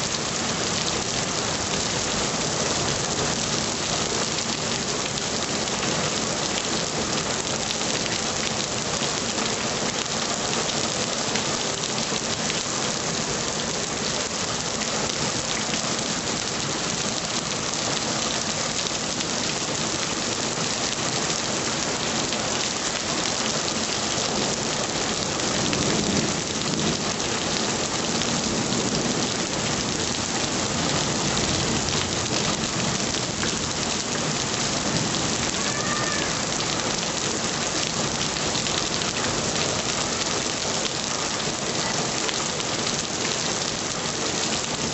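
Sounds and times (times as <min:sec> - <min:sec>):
heavy rain: 0:00.0 - 0:44.9.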